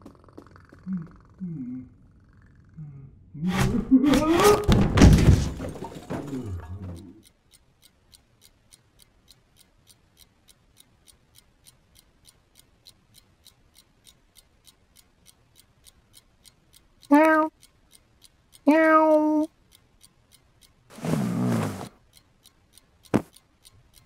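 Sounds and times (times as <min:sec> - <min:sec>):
clock ticking: 0:03.5 - 0:24.0
thud: 0:04.6 - 0:06.5.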